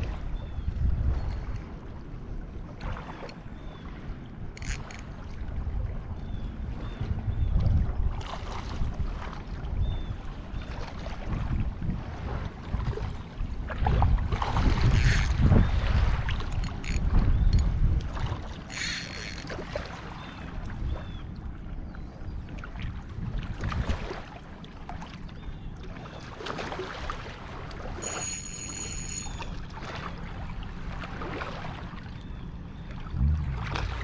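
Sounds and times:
wind rumbling on microphone: 0:00.0 - 0:34.0
water lapping against rocks: 0:10.7 - 0:20.8, 0:32.8 - 0:34.0.

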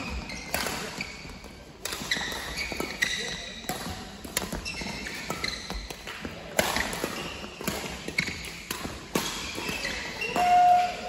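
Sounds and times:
shoes squeaking on floor: 0:00.0 - 0:06.2, 0:06.8 - 0:08.7, 0:09.3 - 0:11.0
racket hitting shuttlecock: 0:01.8 - 0:10.6.

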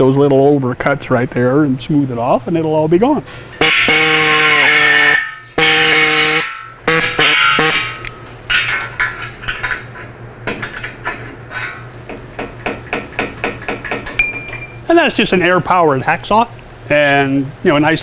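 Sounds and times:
air hacksaw cutting steel: 0:03.6 - 0:08.1.

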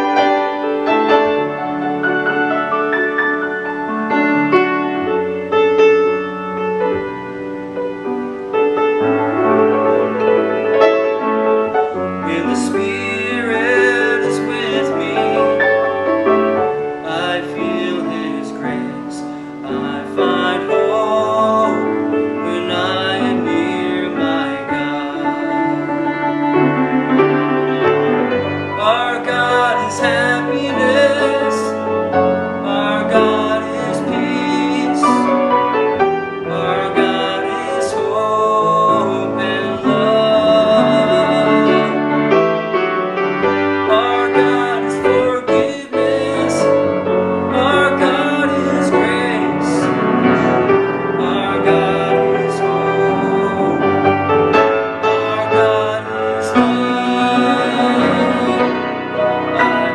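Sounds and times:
piano ballad: 0:00.0 - 0:59.9
man singing: 0:11.8 - 0:42.7, 0:43.5 - 0:59.9.

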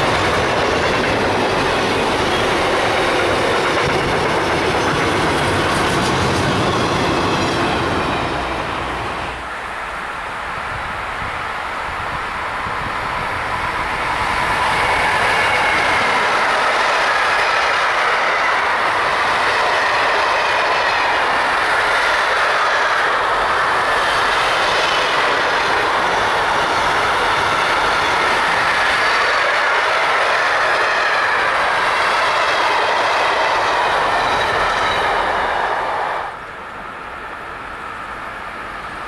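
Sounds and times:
freight train wheels rolling: 0:00.0 - 0:39.0.

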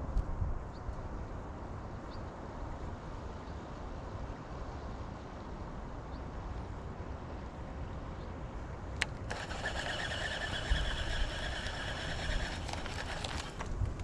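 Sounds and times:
fishing reel whirring: 0:09.3 - 0:13.6.

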